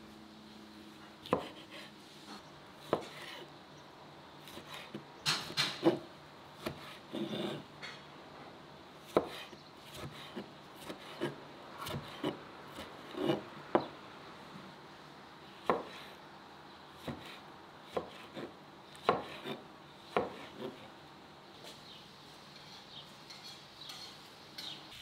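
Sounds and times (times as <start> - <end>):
knife chopping on cutting board: 1.2 - 1.9, 2.8 - 3.5, 4.4 - 7.6, 9.1 - 13.9, 15.6 - 16.1, 17.0 - 20.9.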